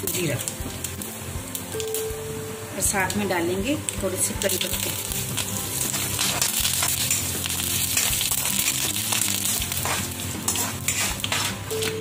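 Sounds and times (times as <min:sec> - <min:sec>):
spices sizzling in hot oil: 0:00.0 - 0:12.0
steel spoon scraping pan: 0:09.7 - 0:11.9.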